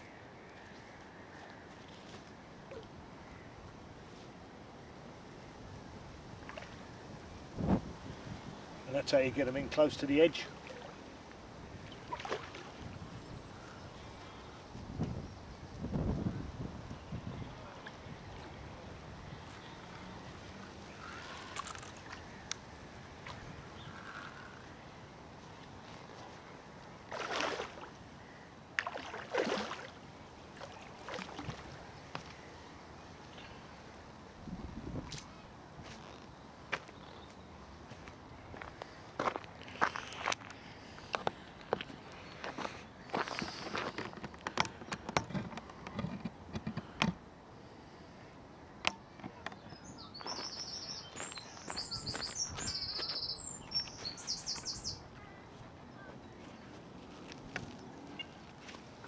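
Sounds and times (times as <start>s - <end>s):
fish splashing at water surface: 27.1s - 27.9s
songbird trilling: 49.8s - 55.4s.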